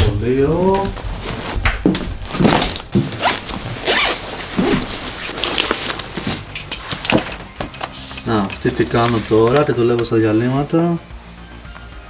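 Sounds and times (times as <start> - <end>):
bag handling: 1.0 - 10.1
zipper rasping open: 2.4 - 6.5.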